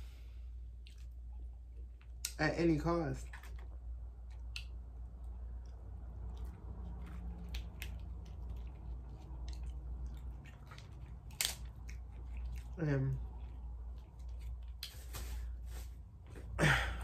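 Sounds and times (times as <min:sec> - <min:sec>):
person chewing crunchy food: 0:00.7 - 0:02.3, 0:03.2 - 0:15.8.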